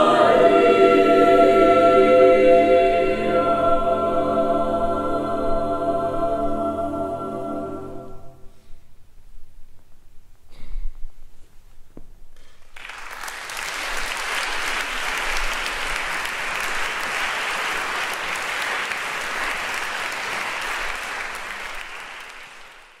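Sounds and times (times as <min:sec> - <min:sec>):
audience applauding: 0:12.6 - 0:23.0.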